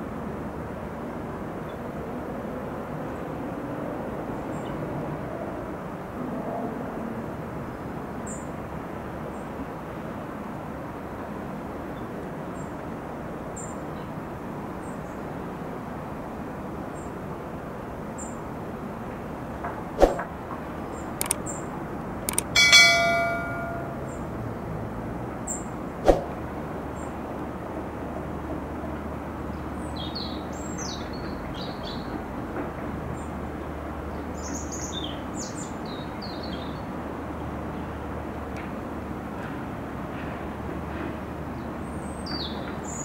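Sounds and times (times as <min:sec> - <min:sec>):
sharp knocks: 0:22.3 - 0:24.0
metallic clang: 0:22.3 - 0:24.2.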